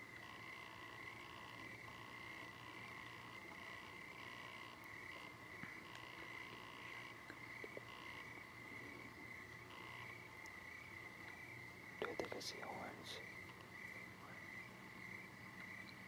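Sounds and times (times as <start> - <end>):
insect high trill: 0.0 - 16.0
insect pulsing calls: 0.0 - 16.0.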